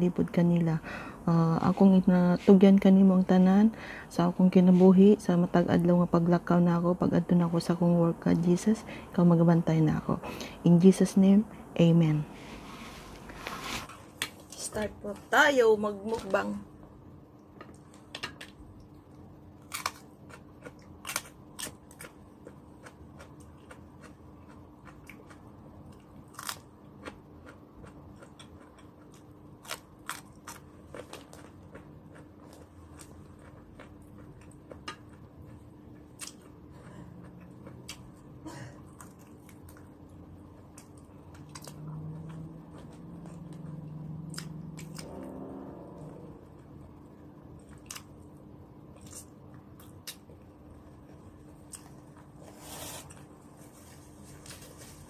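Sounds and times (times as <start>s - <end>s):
faint steady hum: 0.0s - 55.0s
person chewing food: 17.7s - 45.3s, 47.6s - 54.6s.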